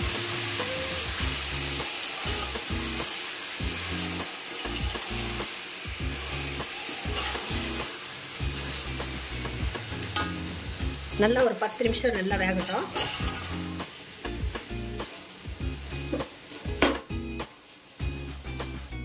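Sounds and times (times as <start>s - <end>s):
chicken sizzling in hot oil: 0.0s - 19.0s
metal spoon stirring in pot: 6.1s - 7.8s, 12.6s - 13.6s.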